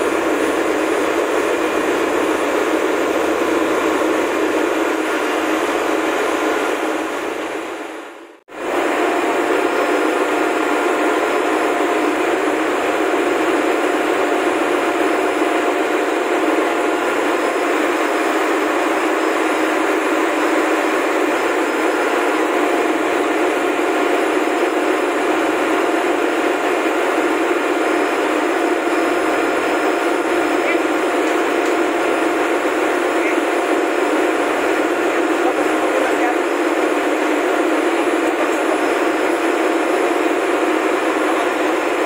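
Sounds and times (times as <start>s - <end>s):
engine room machinery roar: 0.0s - 42.0s.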